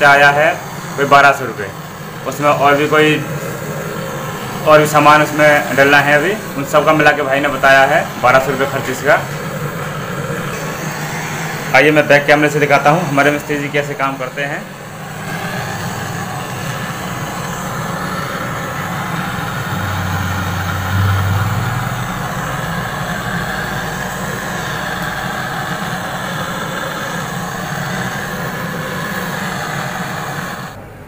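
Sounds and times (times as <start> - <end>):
gas torch hissing: 0.0 - 31.0
deep hum: 14.6 - 29.7.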